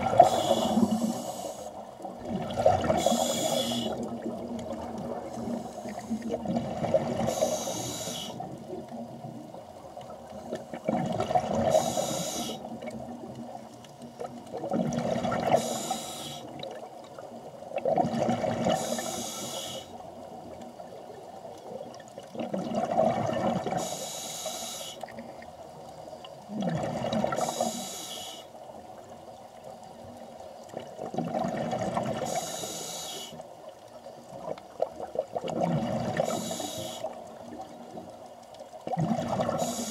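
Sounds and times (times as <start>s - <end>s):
gurgling exhaled bubbles: 0.0s - 1.4s, 2.0s - 8.0s, 10.4s - 13.6s, 14.2s - 16.9s, 17.8s - 19.1s, 22.2s - 23.9s, 26.5s - 27.7s, 30.8s - 32.4s, 34.4s - 37.8s, 38.8s - 39.9s
regulator hiss: 0.2s - 1.8s, 3.0s - 4.1s, 7.3s - 8.4s, 11.7s - 12.7s, 15.6s - 16.5s, 18.8s - 20.0s, 23.8s - 25.0s, 27.4s - 28.5s, 32.2s - 33.4s, 36.2s - 37.2s, 39.6s - 39.9s.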